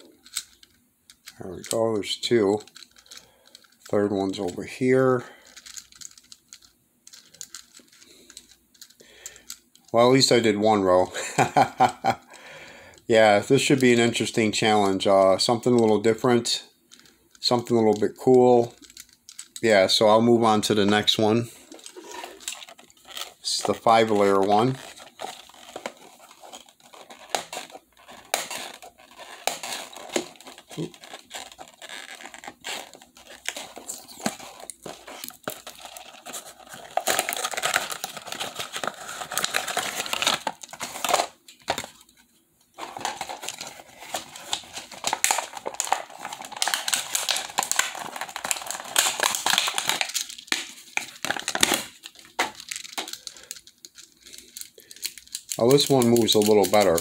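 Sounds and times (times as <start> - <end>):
packaging crinkling: 16.8 - 57.0.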